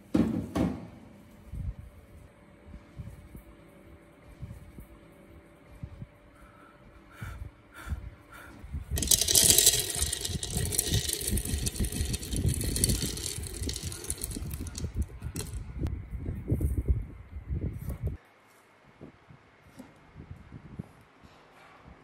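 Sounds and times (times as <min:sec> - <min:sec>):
peanuts rattling into plastic jar: 0:09.0 - 0:15.7.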